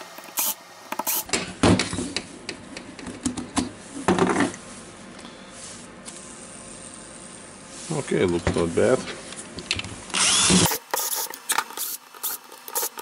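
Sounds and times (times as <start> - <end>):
cordless drill spinning: 10.1 - 13.0.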